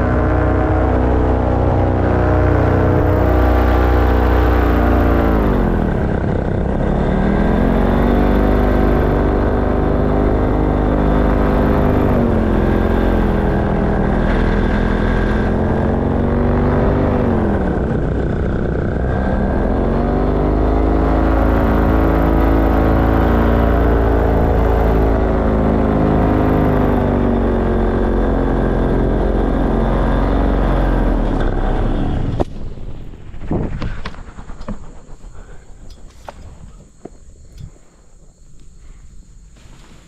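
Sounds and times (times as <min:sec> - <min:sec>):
light aircraft engine running: 0:00.0 - 0:40.0.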